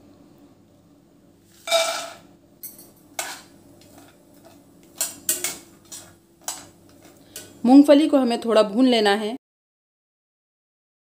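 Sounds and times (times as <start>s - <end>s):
metal spatula scraping pan: 1.5s - 2.3s, 3.2s - 7.6s.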